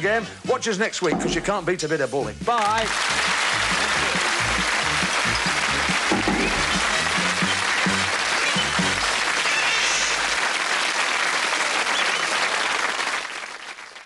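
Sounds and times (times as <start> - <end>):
theme music bass notes: 1.1 - 9.2
studio audience applauding: 2.4 - 14.0.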